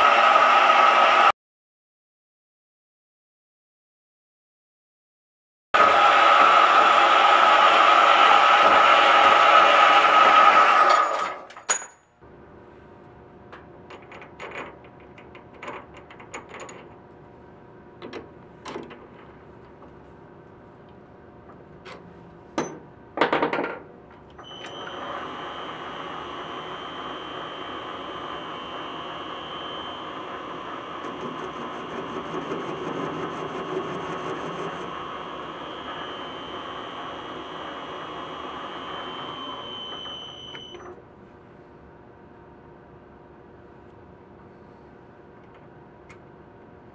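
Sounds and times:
lathe running with high whine: 0.0 - 1.3, 5.8 - 11.2, 24.5 - 40.8.

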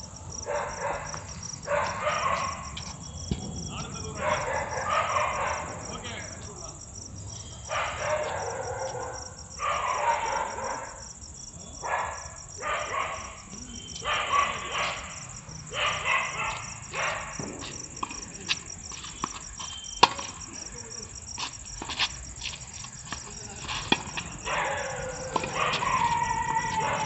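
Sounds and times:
night insects chirring: 0.0 - 27.0
tennis ball bouncing: 2.6 - 4.0, 17.4 - 20.6, 21.8 - 24.4, 25.2 - 26.8
tennis racket hitting ball: 17.4 - 20.4, 23.0 - 24.6, 25.2 - 26.8.

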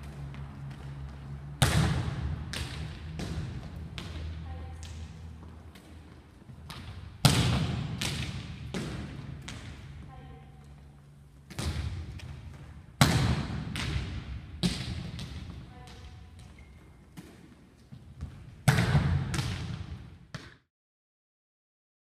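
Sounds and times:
volleyball smacks echoing: 1.6 - 5.1, 6.7 - 9.9, 11.5 - 16.1, 18.6 - 20.6.

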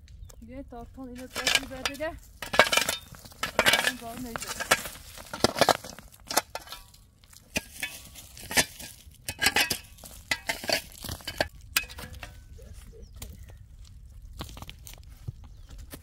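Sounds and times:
objects knocking and scraping: 1.1 - 13.5.

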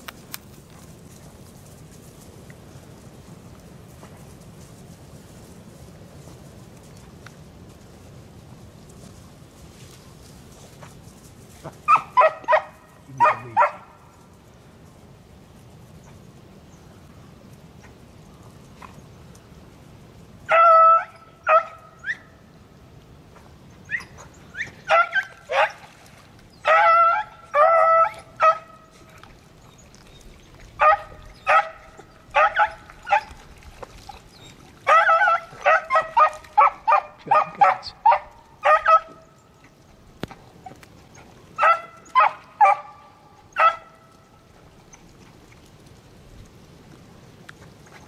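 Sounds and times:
dogs barking and baying: 11.6 - 14.0, 20.5 - 22.2, 23.9 - 25.9, 26.6 - 28.9, 30.8 - 33.5, 34.4 - 39.4, 40.6 - 44.1.

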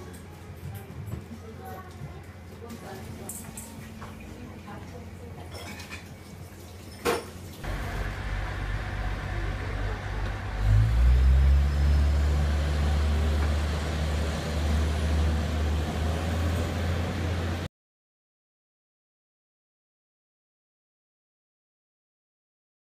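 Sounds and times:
diesel railcar engine drone: 7.6 - 17.7.

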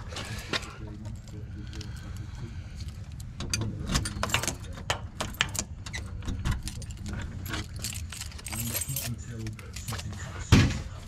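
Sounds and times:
keys jangling: 3.9 - 10.2.

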